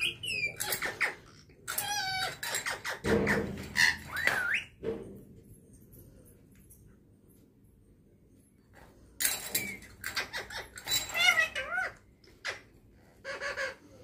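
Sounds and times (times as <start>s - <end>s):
parakeet chattering and whistling: 0.0s - 4.8s.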